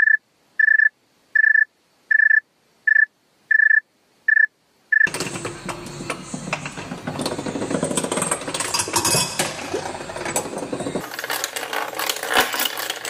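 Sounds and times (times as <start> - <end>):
hand-cranked cricket sound machine clatter: 5.1 - 13.0.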